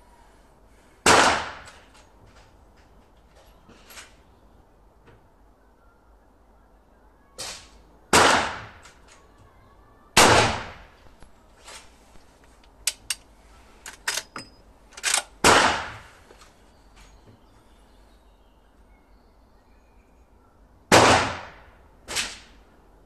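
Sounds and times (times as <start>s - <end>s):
rifle shots ringing: 10.2s - 10.9s, 15.0s - 16.1s
weaker gunshot report: 10.2s - 11.0s, 20.9s - 22.6s.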